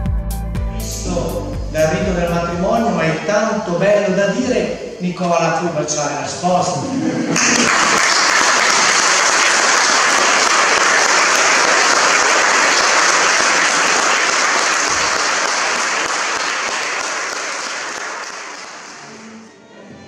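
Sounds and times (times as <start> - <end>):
crowd applauding: 7.3 - 19.4.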